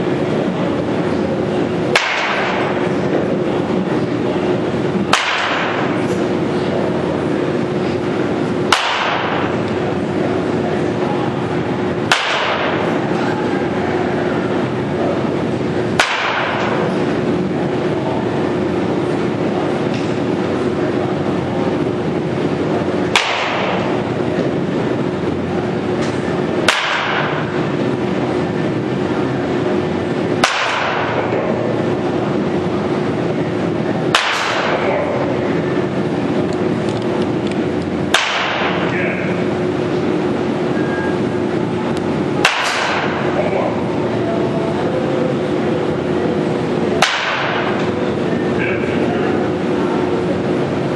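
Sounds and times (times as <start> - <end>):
steady noisy hum: 0.0 - 50.9
baseball bat cracking balls: 0.8 - 4.1, 4.8 - 10.6, 11.4 - 17.2, 22.8 - 24.5, 26.0 - 28.0, 29.6 - 40.2, 41.9 - 43.8, 46.9 - 48.8.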